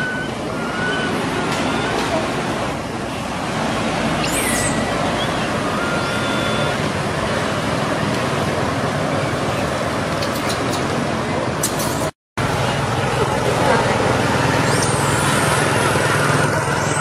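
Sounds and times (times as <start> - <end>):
short whistled calls: 4.2 - 6.8.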